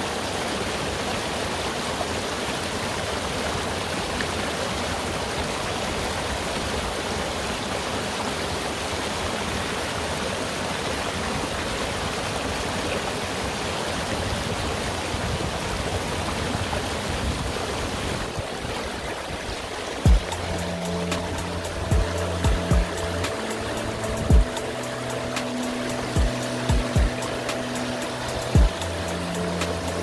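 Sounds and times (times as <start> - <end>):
stream flowing: 0.0 - 30.0
music: 20.1 - 30.0.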